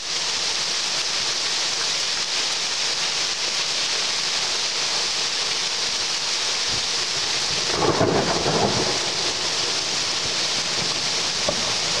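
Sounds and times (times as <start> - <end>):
heavy rain pouring: 0.0 - 12.0
thunder rumble: 7.5 - 12.0.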